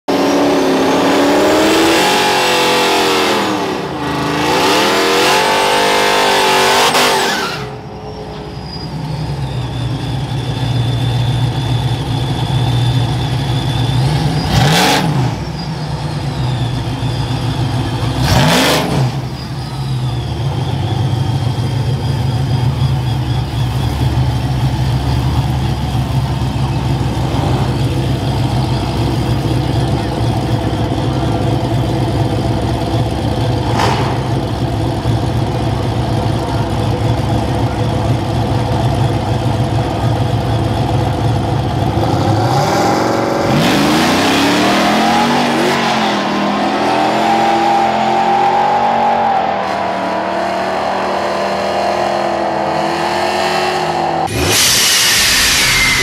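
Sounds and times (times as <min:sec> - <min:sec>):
pickup engine revving: 0:00.1 - 0:07.9, 0:12.8 - 0:56.0
engine idling with low rumble: 0:07.7 - 0:43.2
sudden loud swells: 0:52.3 - 0:56.0.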